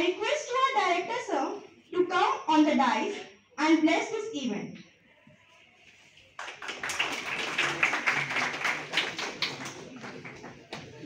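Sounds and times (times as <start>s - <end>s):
audience clapping: 6.4s - 11.0s.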